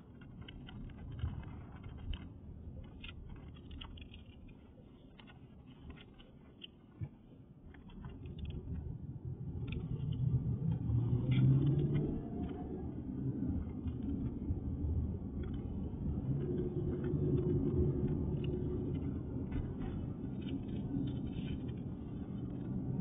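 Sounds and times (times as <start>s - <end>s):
car approaching: 8.1s - 23.0s.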